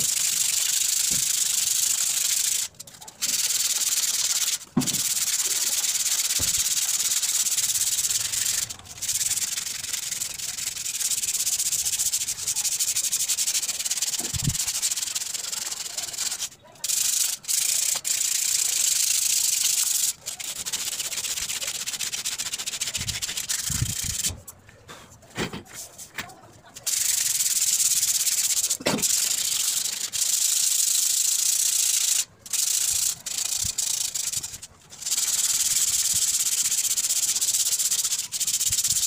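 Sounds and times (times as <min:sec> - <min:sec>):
sandpaper scraping on steel: 0:00.0 - 0:24.4.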